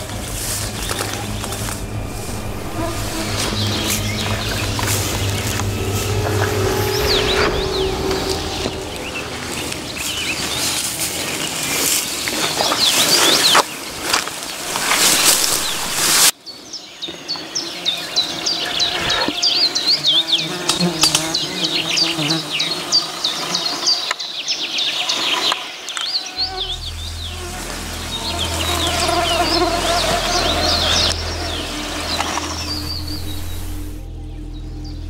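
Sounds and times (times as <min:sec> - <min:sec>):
flying insects buzzing: 0:00.0 - 0:11.3, 0:14.5 - 0:16.3, 0:18.2 - 0:23.8, 0:26.4 - 0:34.0.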